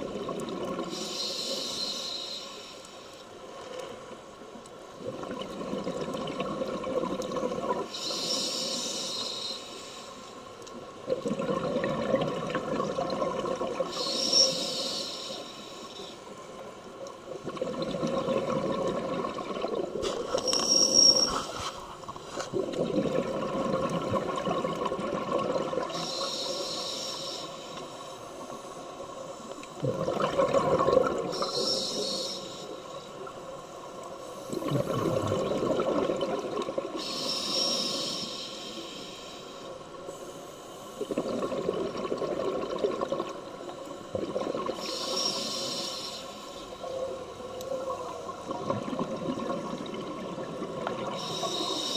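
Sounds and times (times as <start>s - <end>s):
regulator hiss on inhale: 0.8s - 3.4s, 7.8s - 10.6s, 13.8s - 16.7s, 20.0s - 22.5s, 25.9s - 29.7s, 31.2s - 34.9s, 36.9s - 41.3s, 44.7s - 48.4s, 51.0s - 51.9s
bubbling on exhale: 11.1s - 14.0s, 17.4s - 20.3s, 22.3s - 26.0s, 29.8s - 31.6s, 34.5s - 37.0s, 41.0s - 43.4s.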